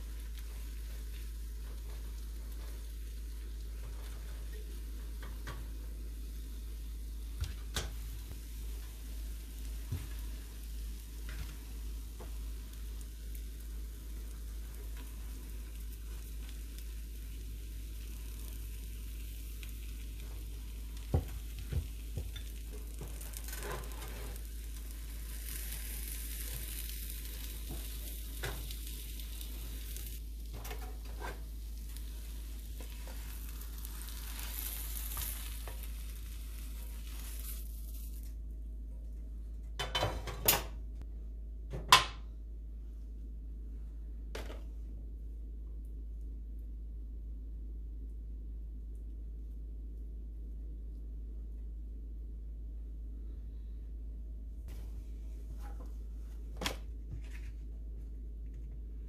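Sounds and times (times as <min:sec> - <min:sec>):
omelet sizzling in a pan: 0:00.0 - 0:38.5
low hum: 0:40.8 - 0:59.0.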